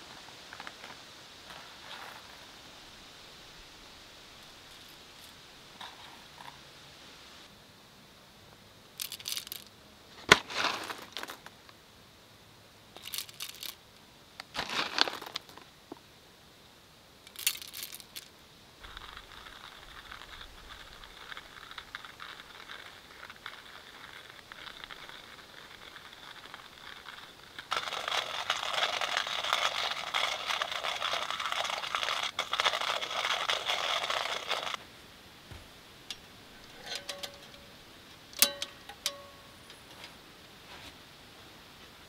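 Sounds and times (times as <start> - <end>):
coffee grinder crunching beans: 9.0 - 9.6, 13.0 - 13.8, 14.6 - 15.6, 17.3 - 34.8.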